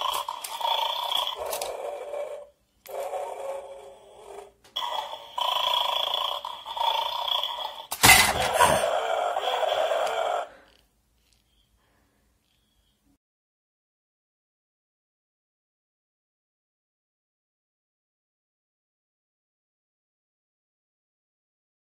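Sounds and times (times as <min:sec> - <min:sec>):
electronic dog sounds from toy: 0:00.0 - 0:11.7.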